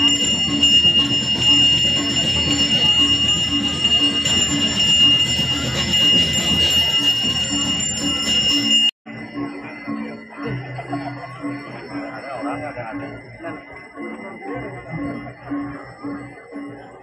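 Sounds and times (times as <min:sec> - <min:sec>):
low pulsing beat: 0:00.0 - 0:08.7
handbell ringing: 0:00.0 - 0:10.0.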